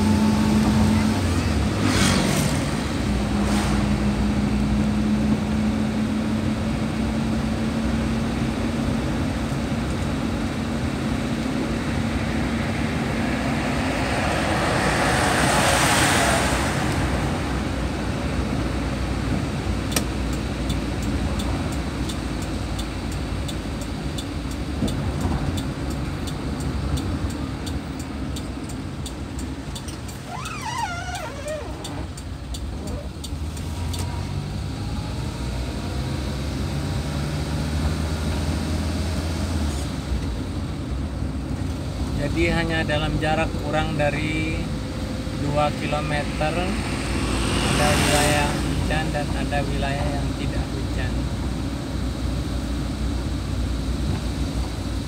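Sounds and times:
engine hum: 0.0 - 42.6
tyre and road noise: 0.0 - 55.0
faint regular ticking: 20.3 - 30.3, 31.0 - 34.0.

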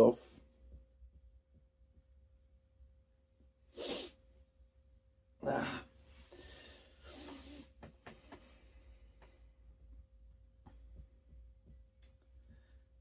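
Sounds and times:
soft breathing: 5.9 - 9.7, 12.3 - 13.0
sharp bursts of breath: 6.2 - 7.7.

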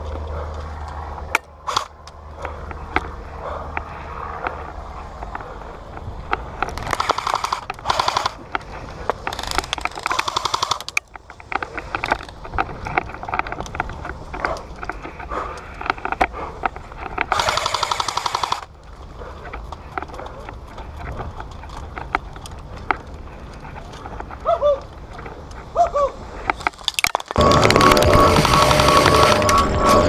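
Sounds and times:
airsoft gun full-auto bursts: 7.0 - 8.4, 10.1 - 10.9, 17.3 - 18.7, 27.4 - 30.0.

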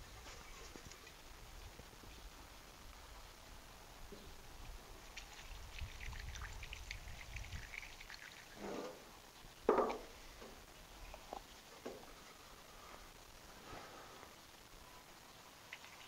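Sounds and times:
oil pouring through a funnel: 5.0 - 9.1
short knocks: 9.7 - 10.6.

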